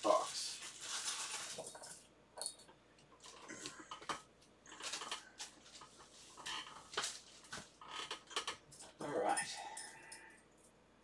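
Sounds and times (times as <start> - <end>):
plastic bag crinkling: 0.0 - 2.0.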